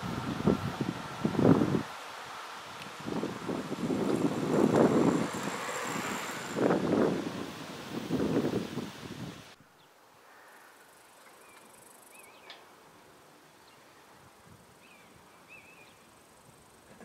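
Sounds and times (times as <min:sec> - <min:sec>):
faint warbling bird chirps: 0:11.2 - 0:12.6, 0:14.8 - 0:16.1.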